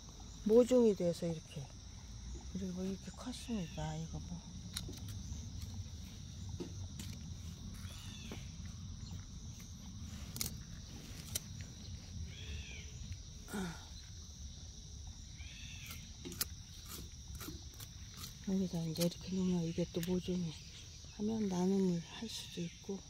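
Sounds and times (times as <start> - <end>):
insects chirring: 0.0 - 23.0
short arching calls: 1.9 - 13.6.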